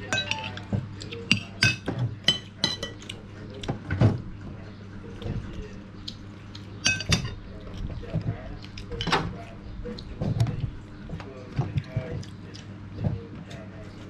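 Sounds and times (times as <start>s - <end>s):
metal spoons clinking on plates: 0.0s - 3.2s, 6.8s - 7.4s.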